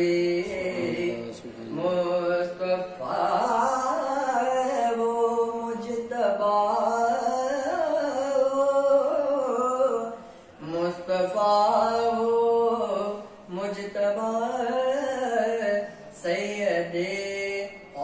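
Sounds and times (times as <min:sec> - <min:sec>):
man singing held ornamented notes: 0:00.0 - 0:18.0.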